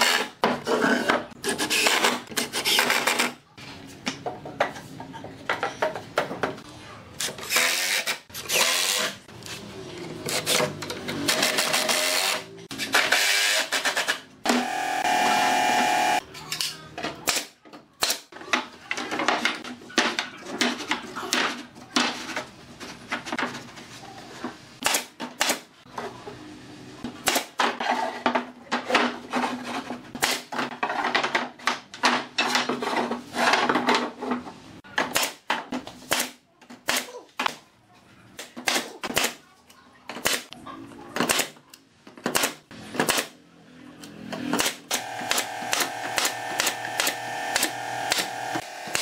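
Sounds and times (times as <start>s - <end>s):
power drill running: 14.5s - 16.2s, 45.0s - 49.0s
nail gun firing: 44.6s - 49.0s.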